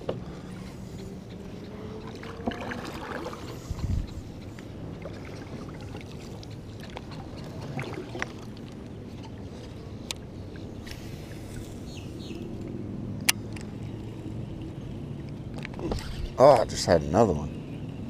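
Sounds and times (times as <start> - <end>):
paddle stroking through water: 0.5 - 9.8.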